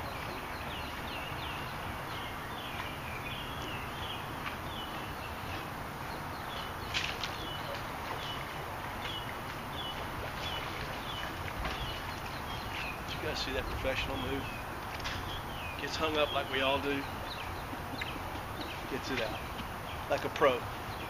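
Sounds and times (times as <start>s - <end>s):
bird chirping: 0.0s - 21.0s.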